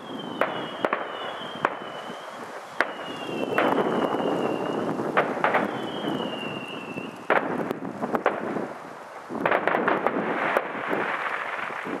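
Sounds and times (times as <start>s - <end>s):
firework whistle: 0.0s - 7.7s
fireworks popping and crackling: 0.0s - 12.0s
firework bang: 2.8s - 6.6s, 7.3s - 8.7s, 9.4s - 12.0s.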